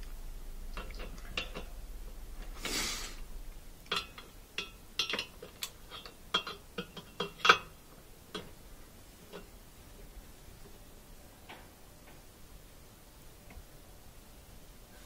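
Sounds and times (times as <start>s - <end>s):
short whoosh of noise: 2.4s - 3.4s.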